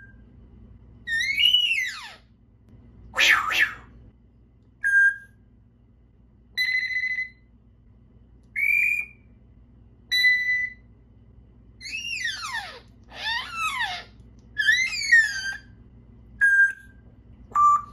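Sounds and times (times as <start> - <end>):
parrot falling whistle: 6.6 - 7.4, 8.6 - 9.2, 10.1 - 10.8, 14.6 - 15.6
parrot beep-like tones: 6.6 - 7.5, 10.1 - 10.8, 11.8 - 15.6, 16.4 - 17.9
parrot rasp: 11.8 - 15.6.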